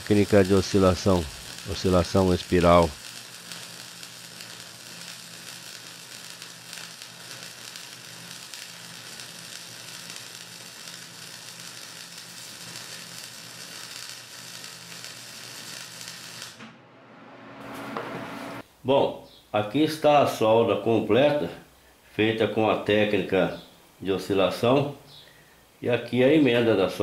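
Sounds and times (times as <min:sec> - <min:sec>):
welding arc hissing: 0:00.0 - 0:16.6.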